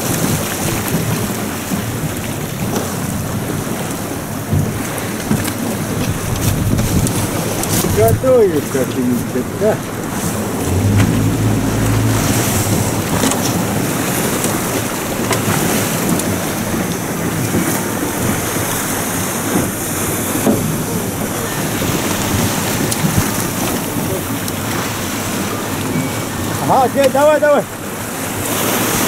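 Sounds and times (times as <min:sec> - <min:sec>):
rushing wind and sea water: 0:00.0 - 0:29.0
wind buffeting microphone: 0:05.7 - 0:26.6.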